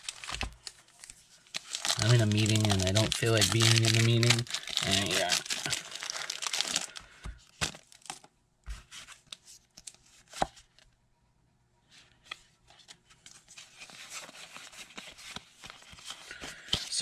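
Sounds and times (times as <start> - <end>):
cards crackling and clicking: 0.0 - 8.3
plastic wrapper tearing and crinkling: 0.0 - 8.3.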